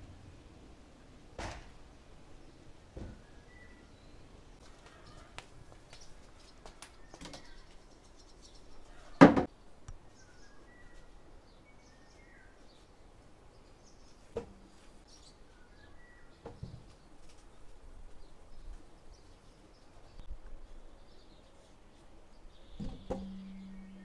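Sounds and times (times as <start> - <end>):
small birds chirping: 2.3 - 24.0.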